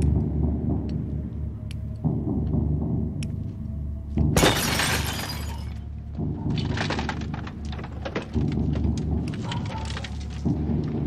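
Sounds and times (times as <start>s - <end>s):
low film score: 0.0s - 11.0s
car window glass shattering: 4.4s - 5.6s
breaking glass crackling: 4.4s - 5.7s.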